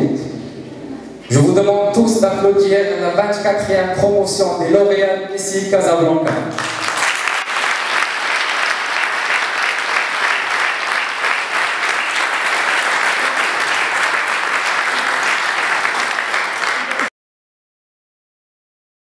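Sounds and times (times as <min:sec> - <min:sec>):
audience applause: 0:06.5 - 0:17.1.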